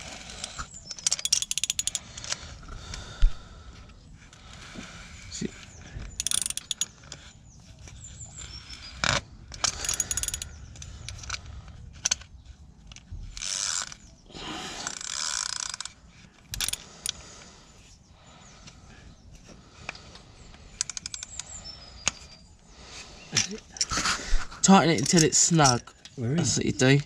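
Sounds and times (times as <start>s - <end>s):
socket ratchet clicking: 0.9s - 2.4s, 6.2s - 7.0s, 9.5s - 10.5s, 14.9s - 17.2s, 20.8s - 21.5s.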